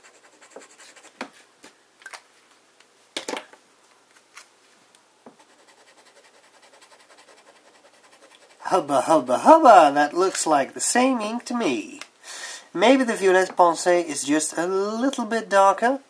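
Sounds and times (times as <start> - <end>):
pen nib scratching on paper: 0.0 - 1.2, 5.4 - 8.7.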